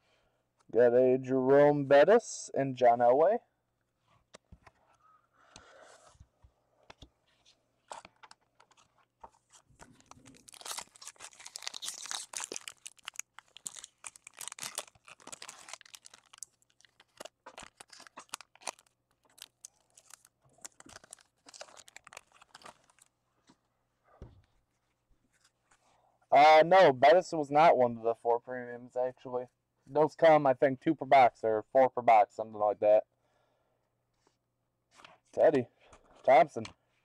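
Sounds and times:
plastic sleeves crinkling: 7.2s - 23.6s.

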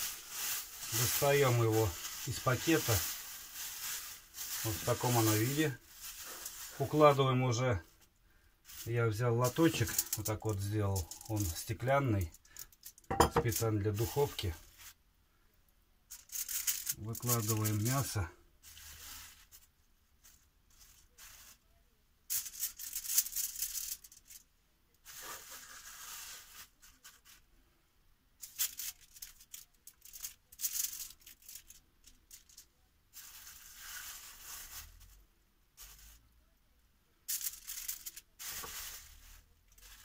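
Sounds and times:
foil crackling: 0.0s - 7.9s, 8.6s - 15.0s, 16.1s - 21.6s, 28.4s - 35.2s, 37.4s - 40.0s
plastic bag crinkling: 0.0s - 8.0s, 8.6s - 15.0s, 16.1s - 21.6s, 22.3s - 24.4s, 25.0s - 27.4s, 28.4s - 35.2s, 37.3s - 40.0s.

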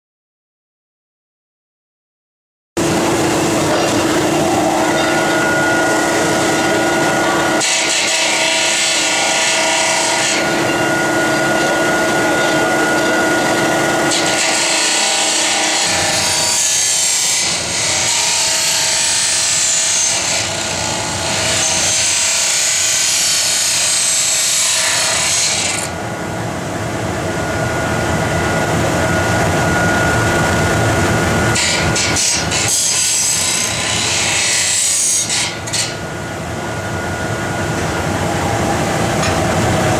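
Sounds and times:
cut-off wheel grinding metal: 2.8s - 26.0s, 31.4s - 36.0s.

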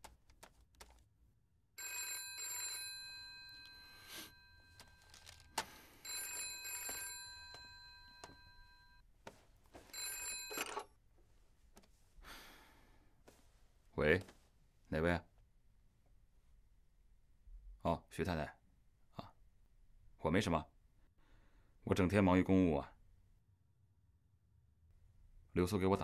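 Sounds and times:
telephone bell ringing: 1.8s - 9.0s, 9.8s - 11.0s.

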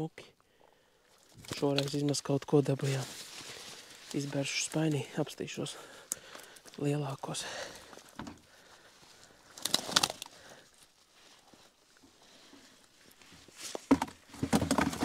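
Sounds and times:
wet net rustling and dripping: 2.9s - 4.3s, 7.8s - 13.3s.

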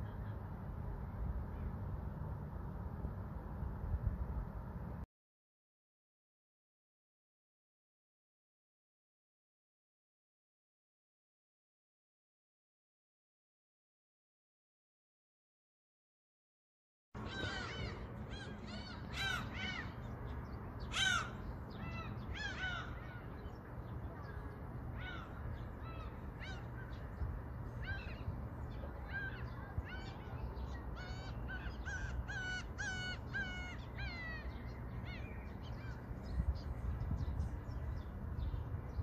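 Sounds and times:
flock of birds calling: 17.2s - 20.2s, 20.8s - 36.4s
steady low rumble: 17.2s - 39.0s.

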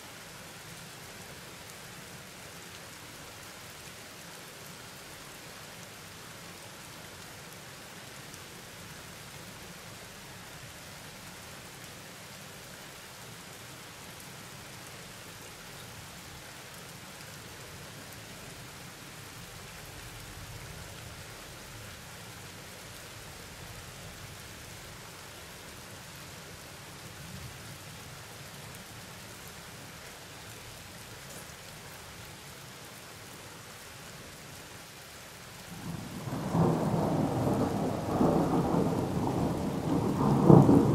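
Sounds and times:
steady rain falling: 0.0s - 40.9s.

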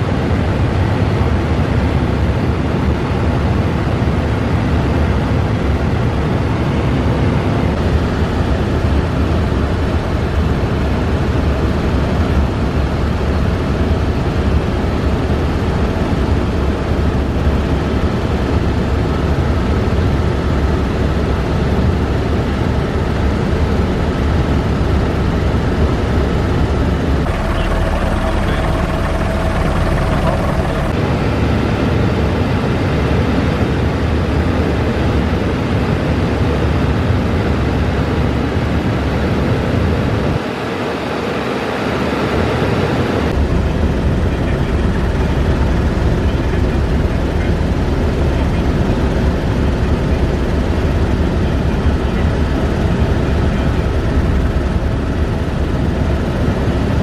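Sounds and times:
helicopter turbine and rotor: 0.0s - 57.0s
steady whine: 24.9s - 32.0s.

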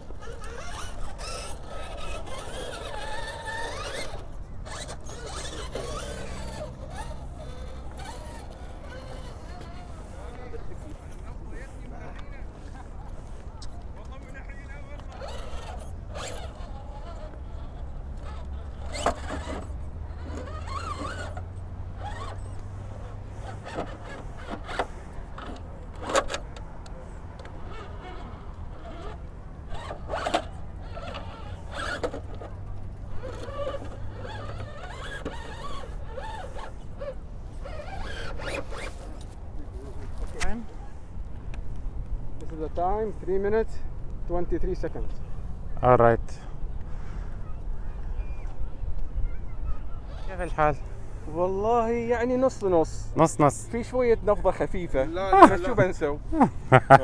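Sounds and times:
rc car electric motor whining: 0.0s - 10.8s, 14.1s - 26.4s, 27.4s - 39.4s.

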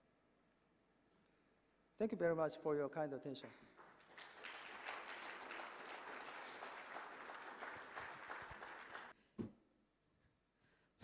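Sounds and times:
audience applauding: 3.8s - 9.2s.

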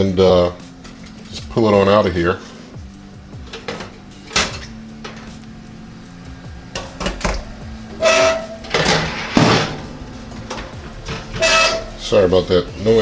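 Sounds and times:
long metal scrape: 7.9s - 10.2s, 10.8s - 12.2s.

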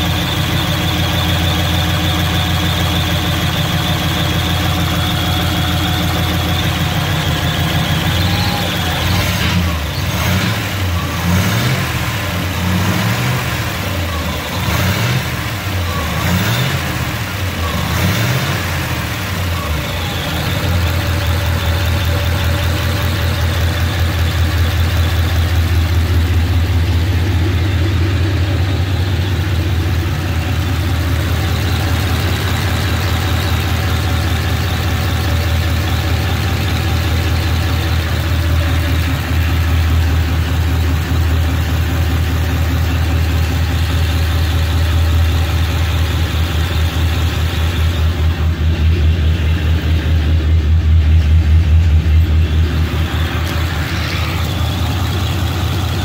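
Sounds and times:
engine revving and idling: 0.0s - 56.0s.

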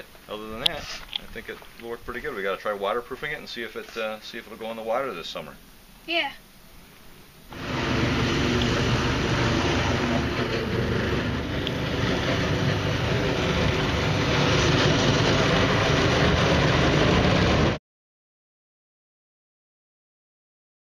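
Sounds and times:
small engine running: 7.5s - 17.8s.

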